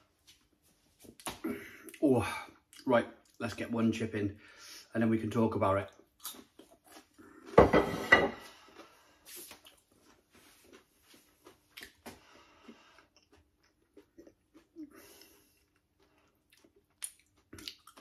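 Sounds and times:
person chewing: 5.9 - 7.6, 8.4 - 18.0
plate clattering on worktop: 7.6 - 8.4.

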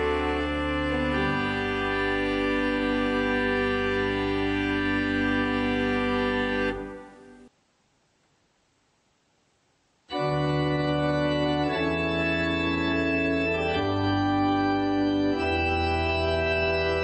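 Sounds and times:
electronic organ sustained chords: 0.0 - 7.5, 10.1 - 17.0
organ pedal bass line: 0.0 - 7.5, 10.1 - 17.0.

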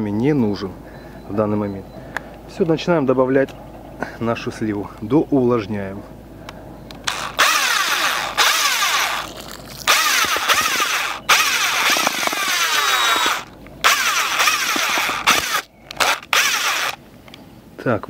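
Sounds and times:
groundbait being mixed in a bucket: 8.0 - 13.5.

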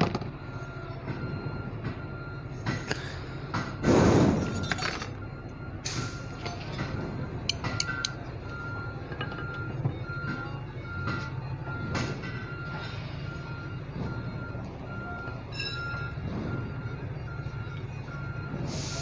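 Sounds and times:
metal tools clinking on metal: 4.5 - 5.2.

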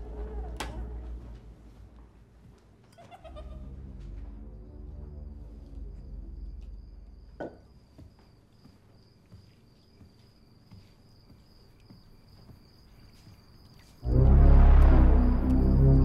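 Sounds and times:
faint footsteps: 0.0 - 15.6
crickets chirping: 0.0 - 16.0
low horror music stinger: 3.3 - 7.4, 14.0 - 16.0.

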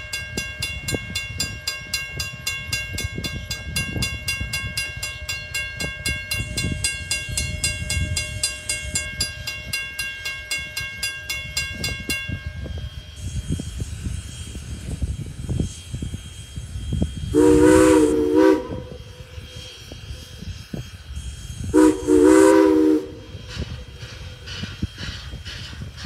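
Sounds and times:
high steam hiss: 0.0 - 26.0
steam locomotive exhaust rumbling: 0.0 - 26.0.

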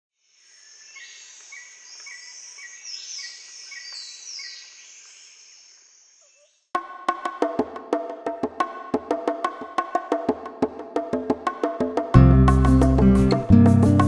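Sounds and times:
insects chirping: 0.2 - 6.7
birds calling: 0.3 - 6.7
percussive music with wooden knocks: 6.8 - 14.0.

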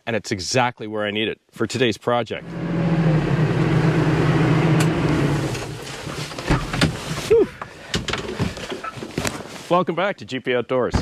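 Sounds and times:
tractor diesel engine running: 2.4 - 6.4.

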